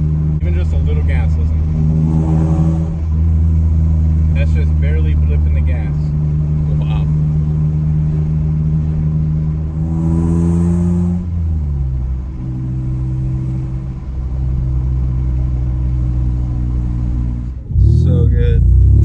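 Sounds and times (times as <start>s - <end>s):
car engine drone from inside cabin: 0.0s - 19.0s.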